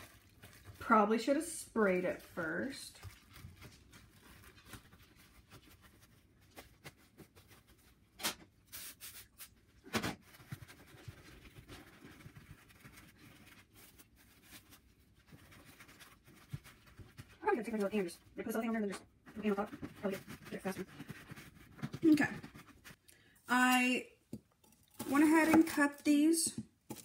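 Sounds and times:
plastic wrap crinkling: 0.0s - 18.2s.

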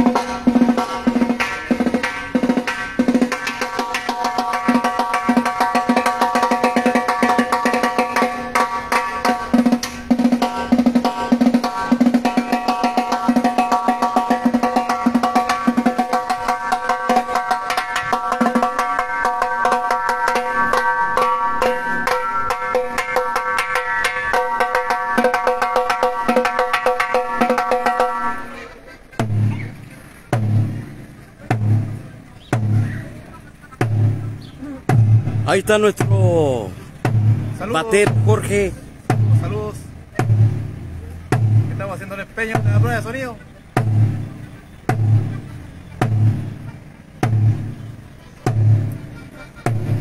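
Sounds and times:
rapid percussion strokes: 0.0s - 28.6s, 29.2s - 50.0s
low drum hits: 33.8s - 43.0s
band playing through speakers: 35.4s - 36.7s.

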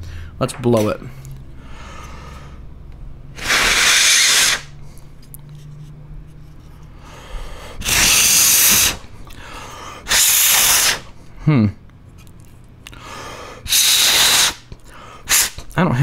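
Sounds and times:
air blasts into cooling fan: 3.3s - 5.0s, 6.9s - 11.2s, 13.1s - 15.7s.

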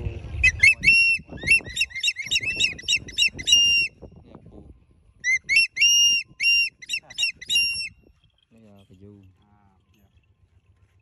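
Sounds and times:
bird of prey screaming: 0.4s - 3.9s.

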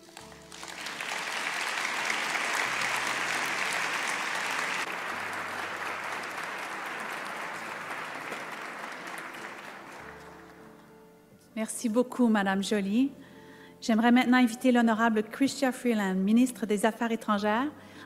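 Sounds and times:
audience applauding: 0.0s - 10.7s.

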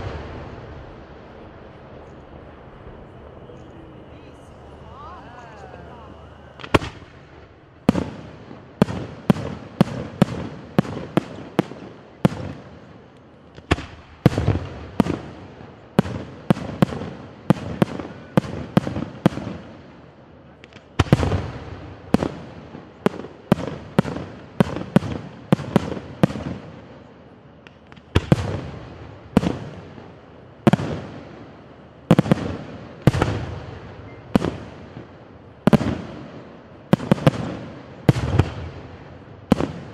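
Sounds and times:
firework shells bursting: 4.4s - 11.6s.

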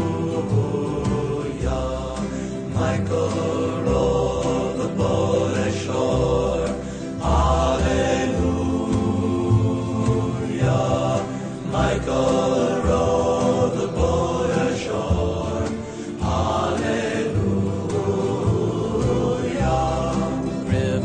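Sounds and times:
choral singing: 0.0s - 21.0s
steady bass line: 0.0s - 21.0s.

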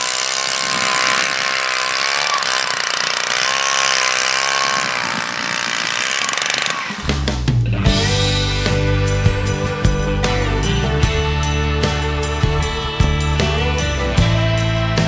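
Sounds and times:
ice auger engine running: 0.0s - 7.3s
guitar rock music: 7.0s - 15.0s.

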